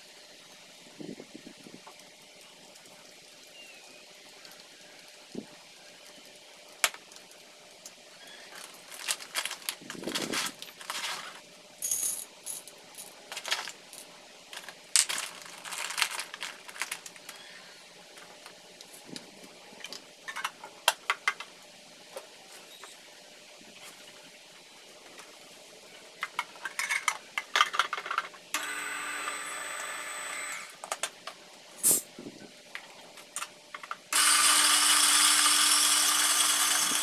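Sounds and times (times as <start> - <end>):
rustling of gear: 8.4 - 11.4, 13.3 - 13.8, 14.6 - 17.5.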